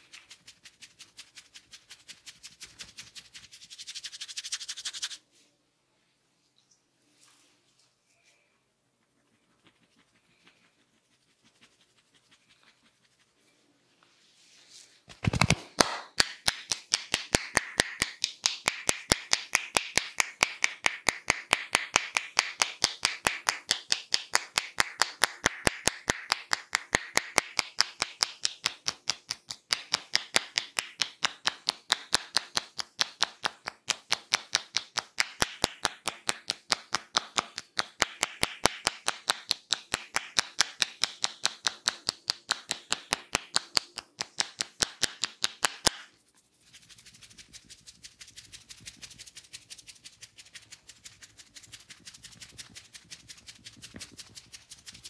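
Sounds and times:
fingers rubbing hair: 0.0s - 5.2s, 9.0s - 55.0s
hands tapping on scalp: 15.1s - 55.0s.

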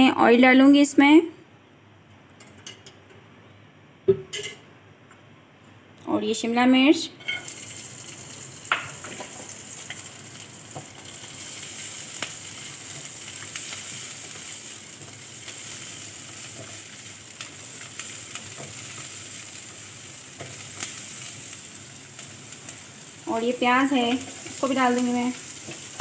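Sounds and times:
vegetables sizzling in oil: 7.2s - 26.0s.

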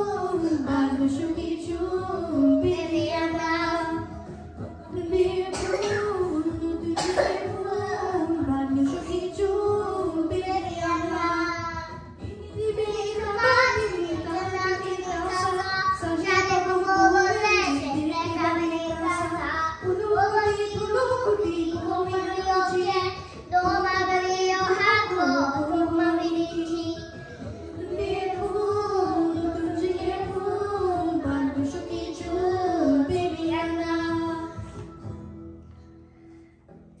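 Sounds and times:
girl singing into a microphone: 0.0s - 34.8s.

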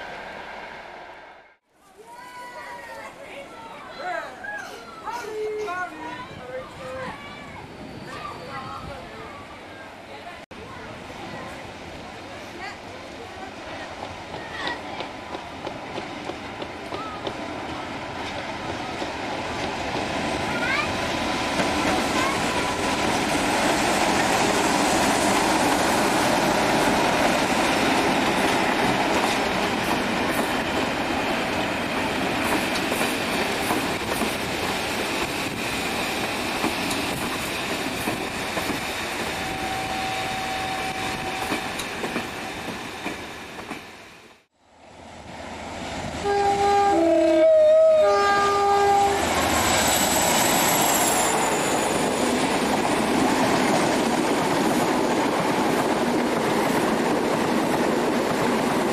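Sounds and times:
train passing at speed: 0.0s - 1.7s, 5.4s - 58.9s
diesel locomotive engine: 7.2s - 58.9s
train wheel clatter: 21.5s - 40.0s
two-tone train horn: 39.4s - 41.6s, 46.2s - 49.3s.

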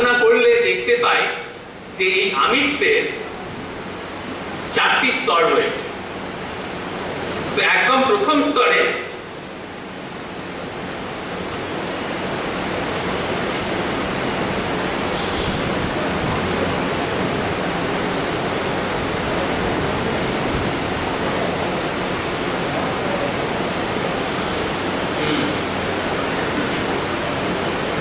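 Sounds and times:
steady rushing hiss: 0.0s - 28.0s.

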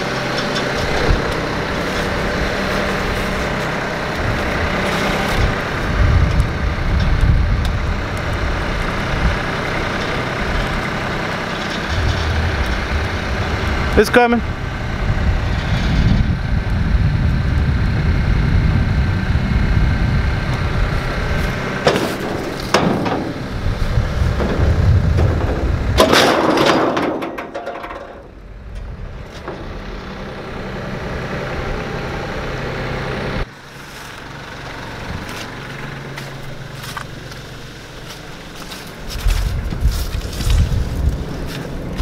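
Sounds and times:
vehicle engine running: 0.0s - 42.0s
loud clattering rush: 21.7s - 28.4s
sharp metal knocks: 21.8s - 28.4s.

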